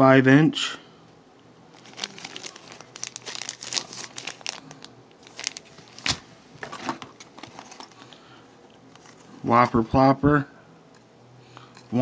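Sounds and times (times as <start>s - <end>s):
plastic packaging crinkling: 1.7s - 8.0s.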